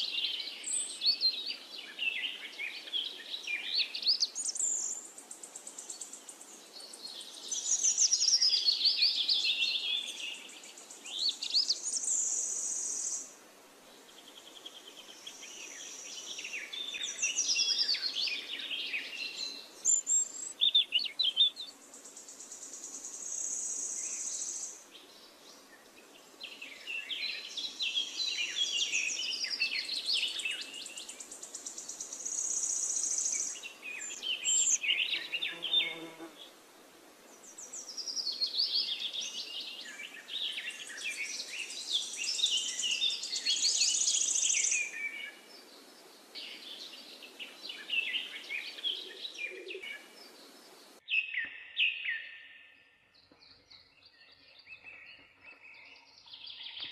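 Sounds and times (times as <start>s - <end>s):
birds chirping: 14.1s - 36.6s, 37.3s - 56.9s.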